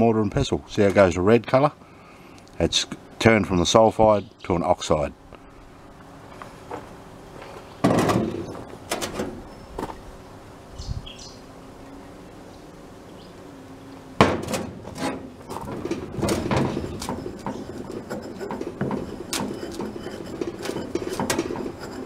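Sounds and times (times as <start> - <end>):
stone pestle grinding in mortar: 14.9 - 22.0.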